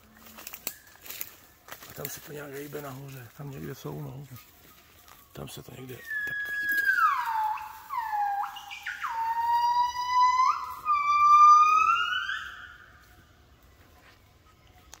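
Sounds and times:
gibbons singing whooping notes: 0:06.1 - 0:12.9.

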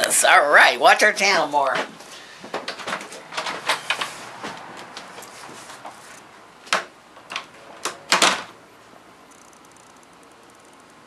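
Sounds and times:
indoor clicks and knocks: 0:02.5 - 0:05.1, 0:06.6 - 0:08.6.

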